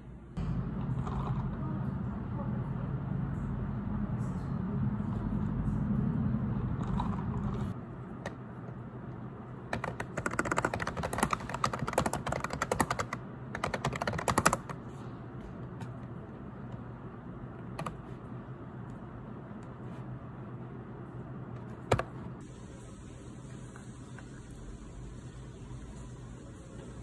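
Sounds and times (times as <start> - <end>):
steady low hum: 0.0 - 27.0
rapid keyboard typing: 9.7 - 14.9, 17.7 - 18.2, 21.9 - 22.2.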